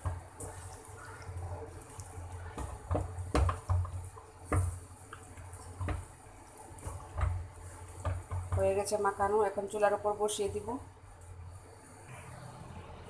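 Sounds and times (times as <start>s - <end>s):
wet squishing of food by hand: 0.0s - 8.8s
knocks against pan: 2.6s - 4.8s.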